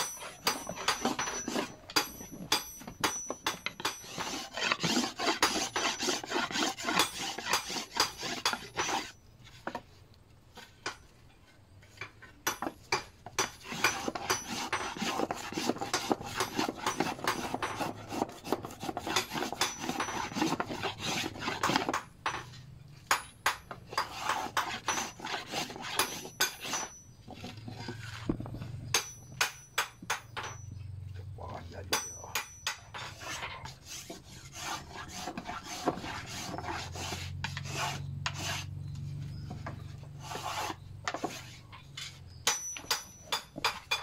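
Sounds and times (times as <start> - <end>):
hand plane rasping on wood: 0.0 - 2.4, 3.5 - 9.2, 13.4 - 22.1, 23.9 - 28.4, 32.9 - 38.8, 39.6 - 41.7.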